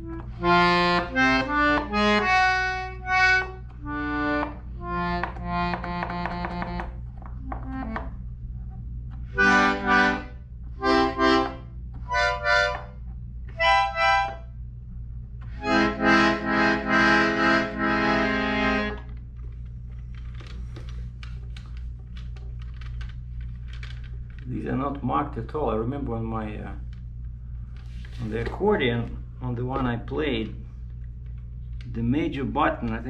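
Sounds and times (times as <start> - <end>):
button accordion chords: 0.0 - 8.3, 9.2 - 14.6, 15.4 - 19.3
steady low hum: 0.0 - 33.0.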